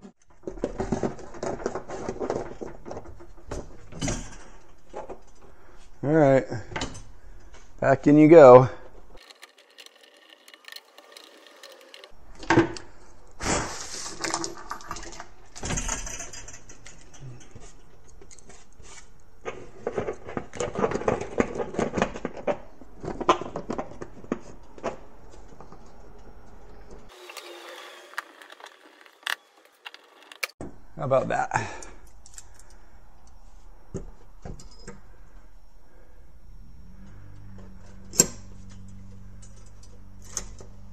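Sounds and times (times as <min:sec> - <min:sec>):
plastic parts knocking and clicking: 0:09.2 - 0:12.6.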